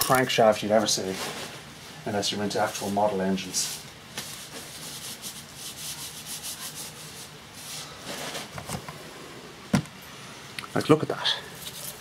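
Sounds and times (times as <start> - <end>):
rubbing and scraping handling noise: 0.0 - 9.0, 11.5 - 12.0.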